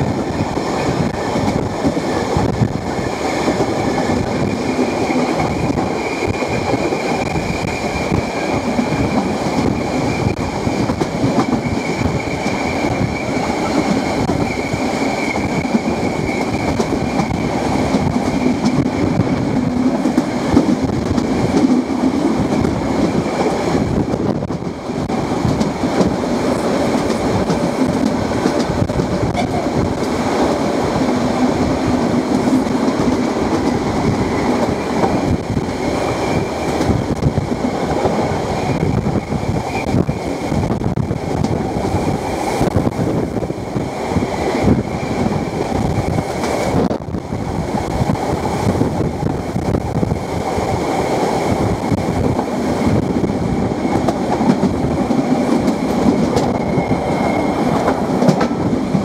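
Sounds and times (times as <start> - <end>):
train rolling with clickety-clack: 0.0 - 59.0
high wheel squeal: 56.5 - 57.8.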